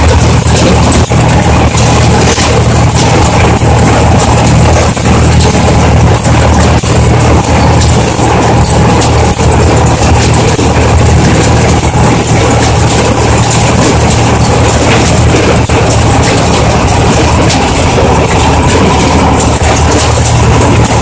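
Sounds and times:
baler mechanism clattering: 0:00.0 - 0:21.0
tractor engine running: 0:00.0 - 0:21.0.

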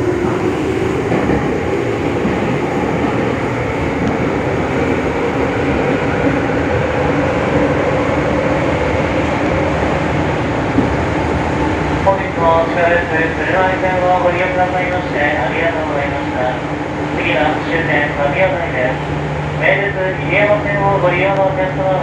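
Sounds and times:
train rumbling in tunnel: 0:00.0 - 0:22.0.

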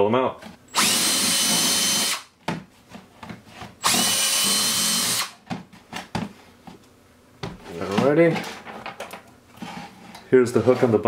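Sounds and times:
drill boring into plastic: 0:00.7 - 0:02.2, 0:03.8 - 0:05.4.

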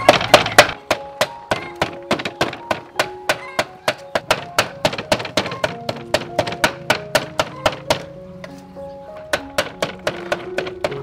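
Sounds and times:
cleaver chopping on wooden board: 0:09.3 - 0:11.0.

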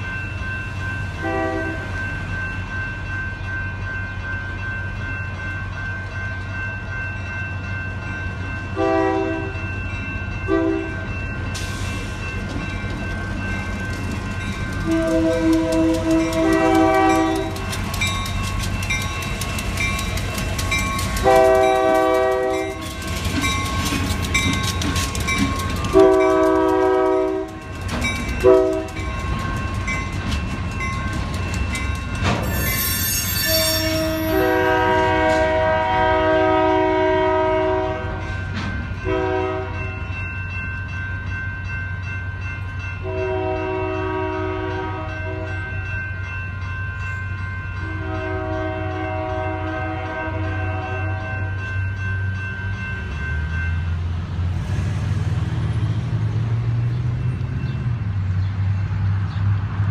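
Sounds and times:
crossing bells ringing: 0:00.0 - 0:58.8
locomotive horn blasts: 0:01.2 - 0:01.9, 0:08.8 - 0:09.6, 0:10.5 - 0:11.0, 0:14.8 - 0:17.6, 0:21.2 - 0:22.8, 0:25.9 - 0:27.6, 0:28.4 - 0:29.0, 0:33.3 - 0:38.2, 0:39.0 - 0:39.8, 0:43.0 - 0:45.6, 0:47.8 - 0:51.6
freight cars clattering over tracks: 0:11.0 - 0:39.2.

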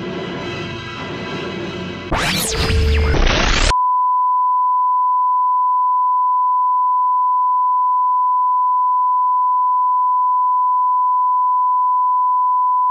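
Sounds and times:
steady test tone beep: 0:03.7 - 0:12.9.

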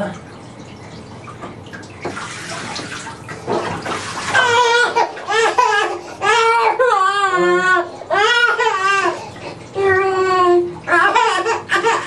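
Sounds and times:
water splashing in a bathtub: 0:00.0 - 0:12.0
child crying: 0:04.4 - 0:09.2, 0:09.8 - 0:12.0.

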